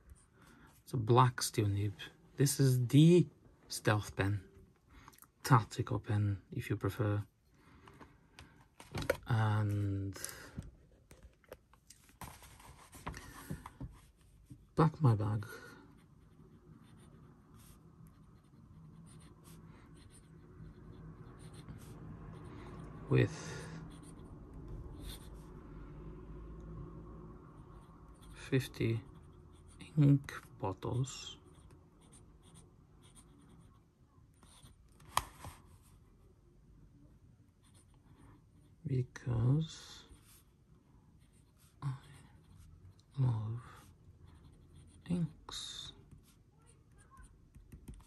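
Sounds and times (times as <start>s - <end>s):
pen nib scratching paper: 15.9s - 22.5s
pen scratching on paper: 15.9s - 25.5s, 27.6s - 30.5s, 31.5s - 36.0s, 37.6s - 38.8s, 41.2s - 42.7s, 43.8s - 48.0s.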